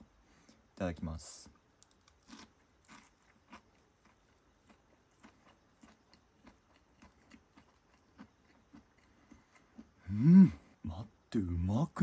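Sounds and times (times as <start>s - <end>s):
chewing crunchy fried food: 1.7s - 10.0s.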